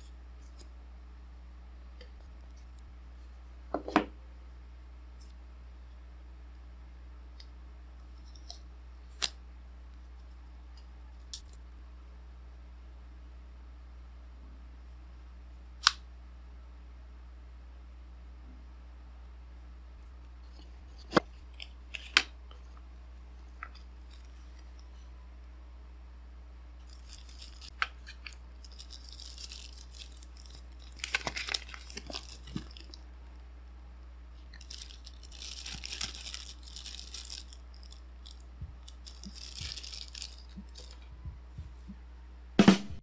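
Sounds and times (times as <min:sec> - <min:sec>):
plastic bag crinkling: 0:23.6 - 0:24.8, 0:26.8 - 0:33.0, 0:34.4 - 0:41.1
paper packaging rustling: 0:26.8 - 0:33.0, 0:34.5 - 0:41.1.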